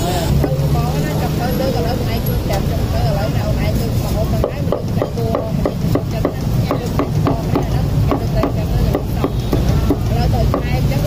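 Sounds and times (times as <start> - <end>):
cleaver chopping on wooden block: 4.4 - 10.7.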